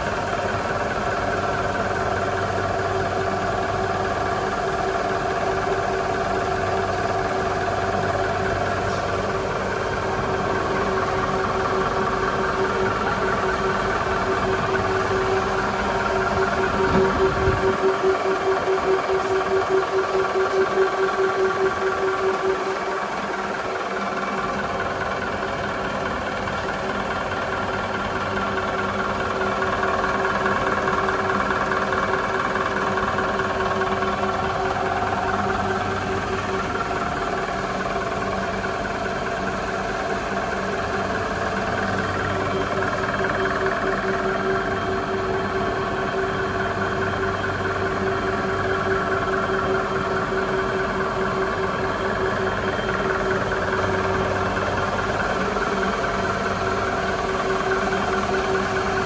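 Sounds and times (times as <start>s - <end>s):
cutting machine humming: 8.2s - 23.8s.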